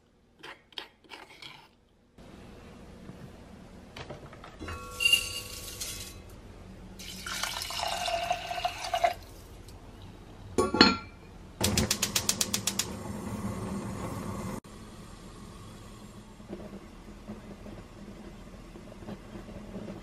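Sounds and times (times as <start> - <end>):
water poured into pot: 7.0 - 9.6
gas igniter clicking: 11.6 - 12.9
gas burner hissing: 11.6 - 20.0.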